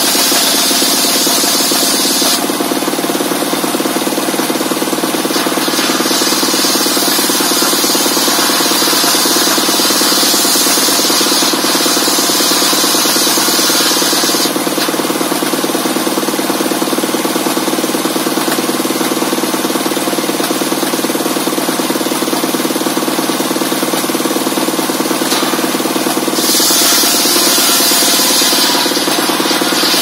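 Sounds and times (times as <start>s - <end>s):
circular saw cutting wood: 0.0s - 16.6s, 24.9s - 30.0s
saw blade spinning with engine hum: 0.0s - 30.0s.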